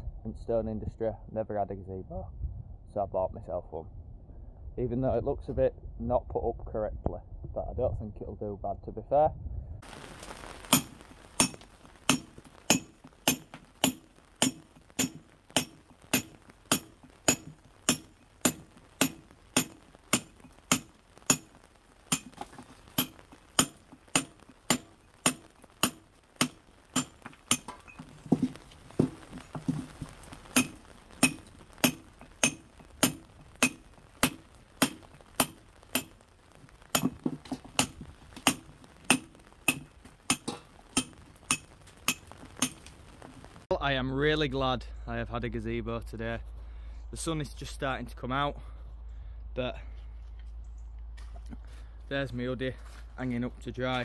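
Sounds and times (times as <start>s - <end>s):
hammer striking steel punch: 10.7s - 21.5s, 22.1s - 22.4s, 23.0s - 27.8s, 30.6s - 36.1s, 37.0s - 37.2s, 37.8s - 42.8s.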